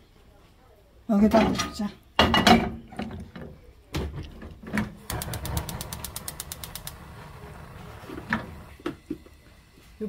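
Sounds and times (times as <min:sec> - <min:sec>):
stove igniter clicking rapidly: 0:05.0 - 0:07.3
gas flame rushing: 0:05.0 - 0:10.0.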